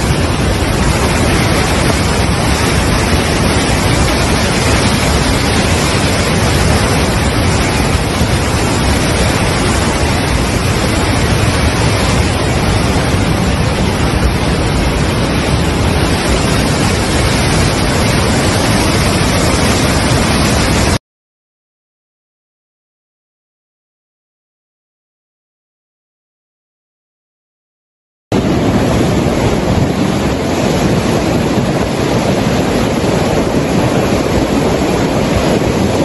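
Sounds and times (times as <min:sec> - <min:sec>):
floodwater roaring: 0:00.0 - 0:21.0, 0:28.3 - 0:36.0.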